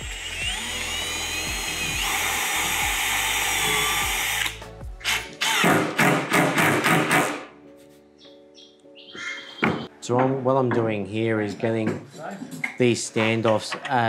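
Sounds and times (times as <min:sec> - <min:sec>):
cordless drill boring plywood: 0:00.0 - 0:05.7.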